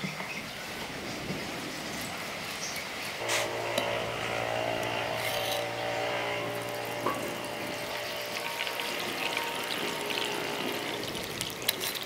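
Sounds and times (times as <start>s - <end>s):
low multi-tone hum: 3.2s - 11.8s
oil hissing on hot wok: 6.5s - 12.0s.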